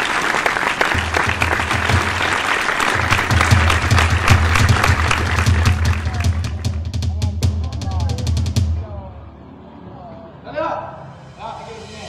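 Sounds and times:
hand clapping: 0.0s - 6.8s
crowd noise: 0.0s - 11.8s.

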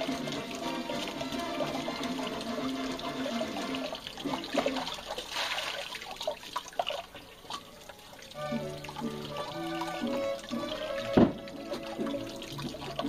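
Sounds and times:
water gushing from a bottle: 0.0s - 13.0s
water splashing and trickling: 0.0s - 13.0s
wet knocks of fish handled: 11.2s - 11.5s.

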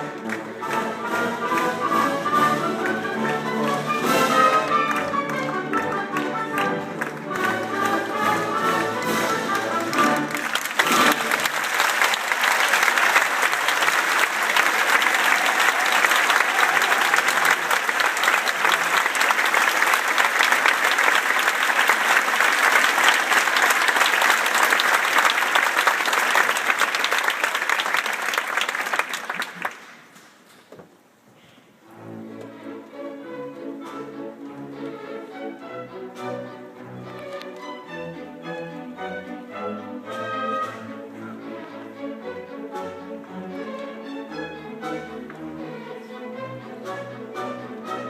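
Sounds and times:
orchestra playing: 0.0s - 27.4s, 31.8s - 48.0s
audience applause: 0.0s - 30.2s.

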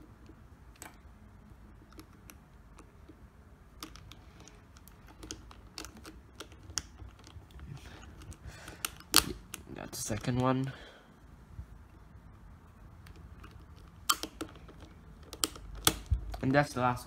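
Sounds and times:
plastic puzzle cube clicking: 3.8s - 9.7s, 13.0s - 16.4s.

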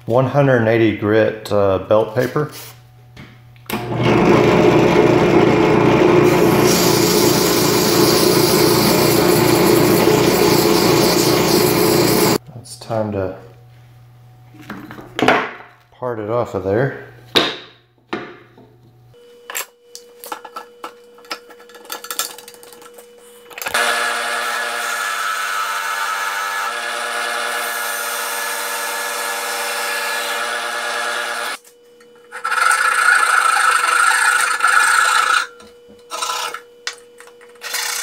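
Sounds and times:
drill press motor humming: 3.7s - 12.4s
hand saw cutting spinning wood: 3.8s - 12.4s, 23.7s - 31.6s, 32.3s - 36.6s, 37.6s - 38.0s
turning tool scraping wood: 6.2s - 12.4s, 32.3s - 36.6s.

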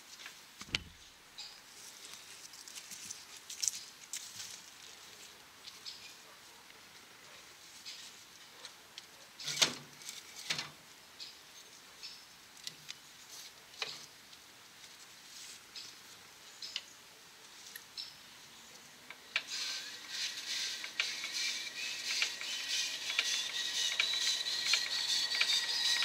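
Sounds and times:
hands and tools clicking on engine: 20.6s - 26.0s.

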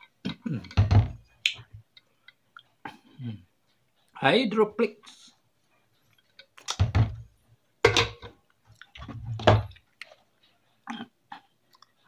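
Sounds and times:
person gulping water: 0.1s - 0.9s, 10.8s - 12.0s.

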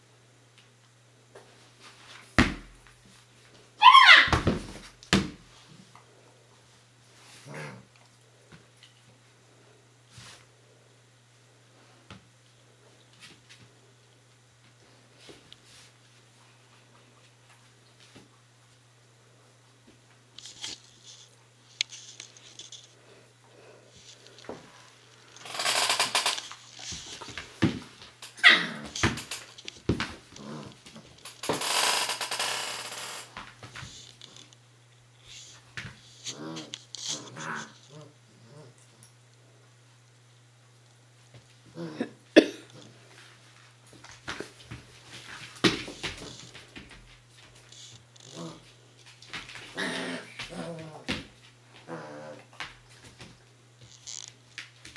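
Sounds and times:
dog whining: 3.8s - 4.4s
dog yelps: 3.8s - 4.5s, 28.4s - 28.8s
dogs growling: 7.4s - 7.9s, 28.4s - 29.0s, 30.3s - 31.1s, 36.3s - 38.8s, 48.2s - 48.7s, 49.7s - 51.1s, 51.7s - 52.6s.

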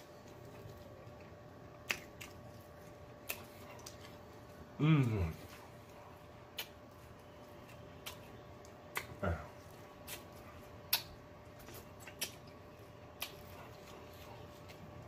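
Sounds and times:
chewing food: 0.0s - 15.0s
wet lip smacks and mouth clicks: 1.8s - 2.4s, 6.5s - 6.8s, 8.0s - 9.2s, 10.0s - 13.8s
low vocal sound: 4.8s - 5.5s.

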